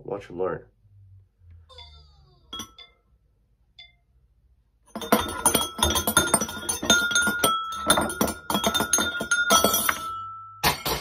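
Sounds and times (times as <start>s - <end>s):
metal spoons clinking on ceramic bowls: 2.5s - 3.2s, 3.8s - 4.0s, 4.9s - 11.0s.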